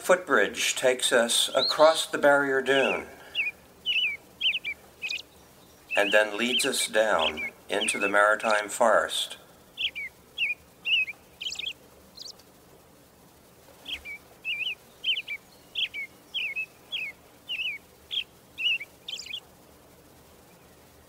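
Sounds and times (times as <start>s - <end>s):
small bird chirping: 1.5s - 8.6s, 9.6s - 12.6s, 13.8s - 19.5s.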